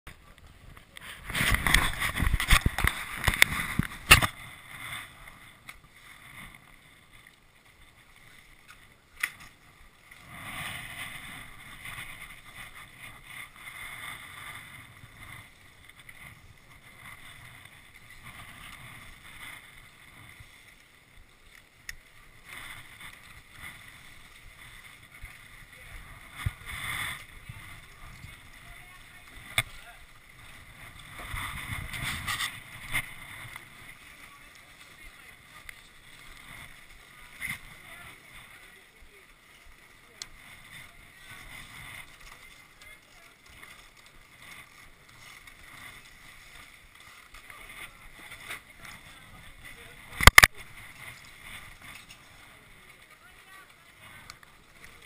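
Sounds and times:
rustling: 0.1 - 55.0.

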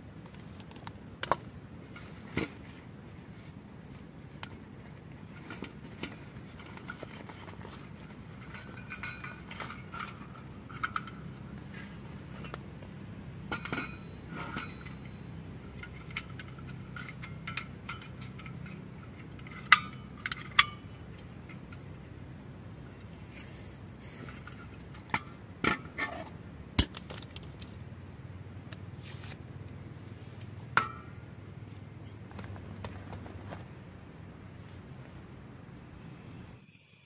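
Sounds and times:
light metal clinks: 5.3 - 12.6, 13.5 - 22.2.

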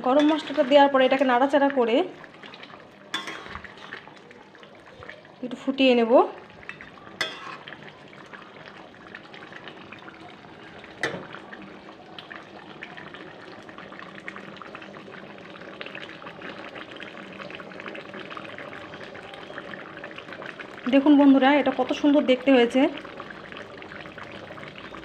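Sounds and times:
gravy bubbling in a pan: 0.0 - 25.0.

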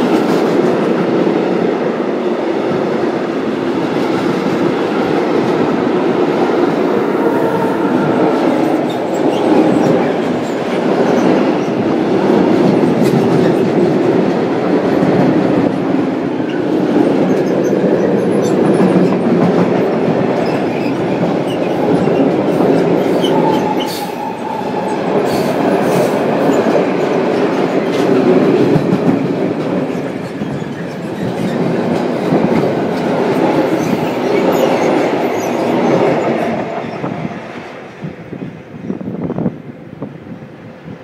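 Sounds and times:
clickety-clack over rail joints: 0.0 - 1.9, 2.8 - 39.4
train wheels rumbling on rails: 0.0 - 41.0
high wheel squeal: 23.0 - 26.1.

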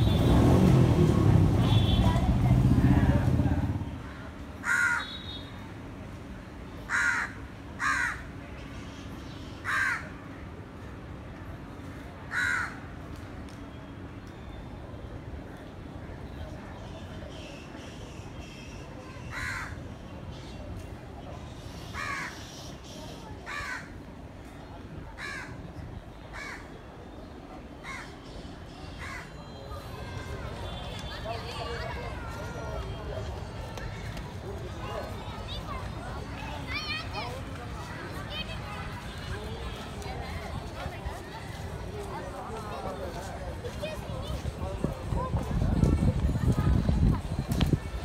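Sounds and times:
crow cawing: 4.6 - 5.1, 6.9 - 8.3, 9.6 - 10.1, 12.3 - 12.8, 19.3 - 19.8, 22.0 - 22.4, 23.5 - 23.9, 25.2 - 25.6.

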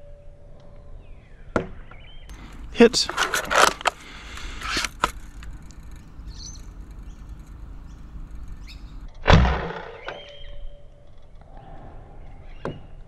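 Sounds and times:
light clicks: 2.3 - 9.1.

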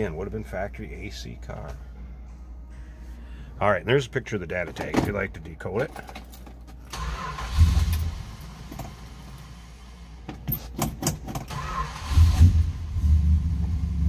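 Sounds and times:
keys jangling: 5.8 - 6.9, 10.4 - 11.5
car engine starting: 6.8 - 14.0.

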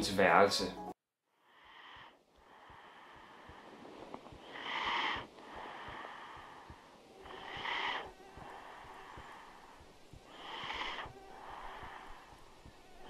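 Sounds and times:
person breathing heavily in sleep: 1.4 - 13.0.

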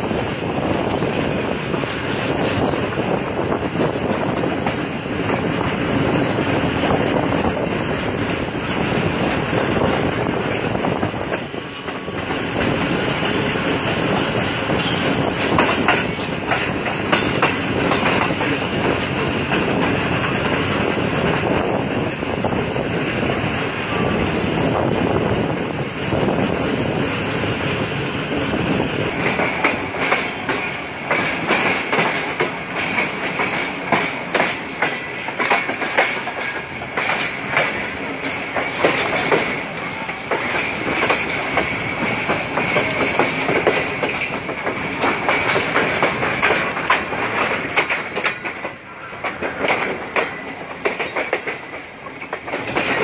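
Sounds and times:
train wheels clattering over rail joints: 0.0 - 53.0
high wheel squeal: 14.7 - 15.2.

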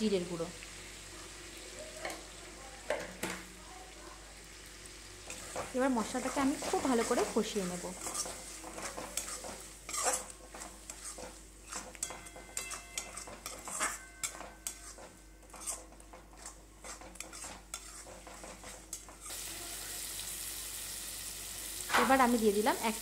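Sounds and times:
paste sizzling: 4.5 - 23.0
metal spatula scraping a wok: 5.3 - 19.4.

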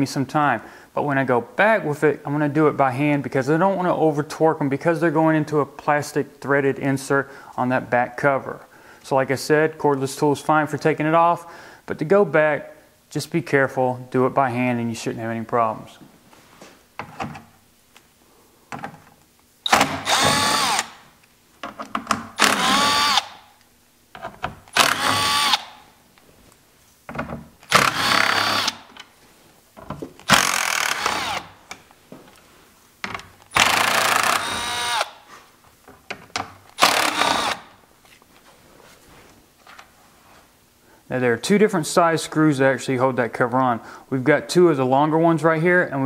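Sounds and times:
cordless driver motor whine: 19.7 - 21.0, 22.4 - 23.4, 24.8 - 25.8, 30.3 - 31.5, 33.6 - 35.1.

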